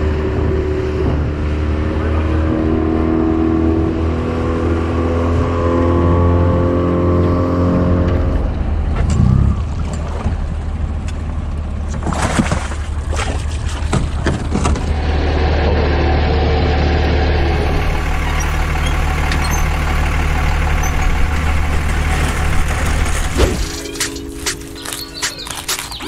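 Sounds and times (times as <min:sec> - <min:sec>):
engine running with low hum: 0:00.0 - 0:26.0.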